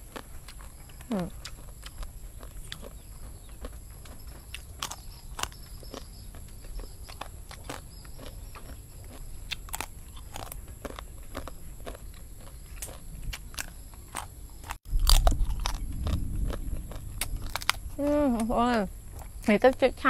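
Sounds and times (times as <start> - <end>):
crunching banana chips: 0.0 - 19.8
low rumble: 14.9 - 19.5.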